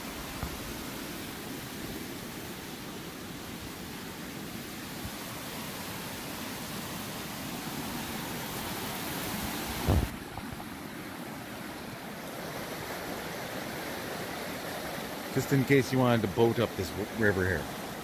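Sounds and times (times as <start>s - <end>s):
river rapids rushing: 0.0s - 18.0s
low thump on microphone: 9.8s - 10.5s.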